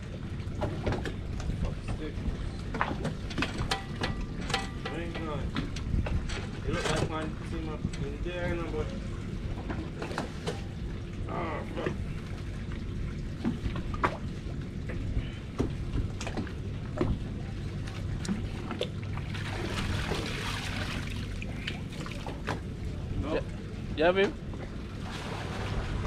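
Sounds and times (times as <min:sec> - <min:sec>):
steady low hum: 0:00.0 - 0:26.0
water sloshing and pouring: 0:08.8 - 0:22.9, 0:24.7 - 0:26.0.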